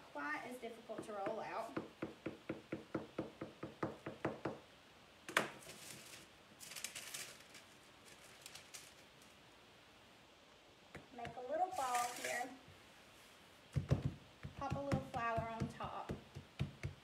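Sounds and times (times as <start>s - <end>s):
parchment paper rustle: 5.4s - 9.4s, 11.7s - 12.6s.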